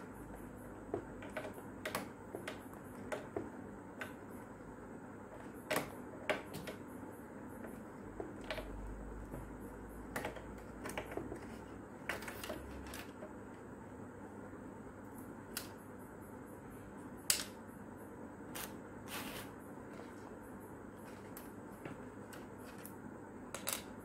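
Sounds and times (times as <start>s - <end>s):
plastic parts clicking and tapping: 10.1s - 13.3s.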